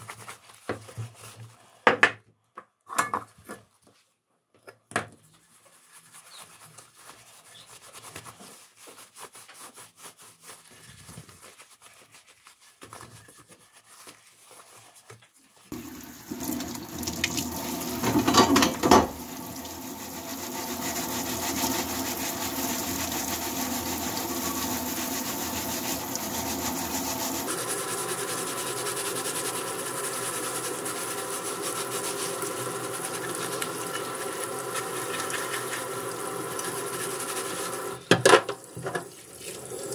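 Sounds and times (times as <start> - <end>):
gloved hands rubbing metal: 5.3 - 15.7, 17.8 - 37.8
tap running into a sink: 15.8 - 19.8, 38.1 - 39.6
water splashing over a dish: 15.8 - 27.5.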